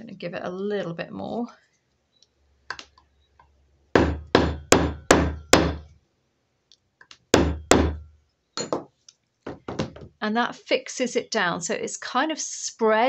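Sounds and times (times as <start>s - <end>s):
rubber mallet striking metal: 4.0s - 5.9s, 7.3s - 8.0s.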